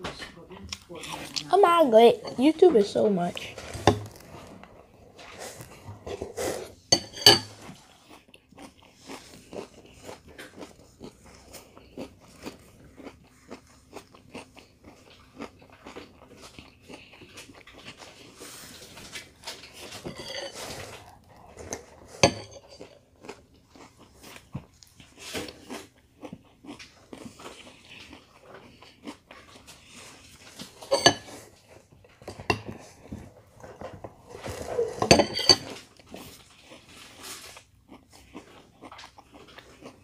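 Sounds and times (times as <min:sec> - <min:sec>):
crunching and chewing cereal: 0:03.3 - 0:06.9, 0:07.5 - 0:40.0
spoon clinking on glass bowl: 0:07.0 - 0:07.5.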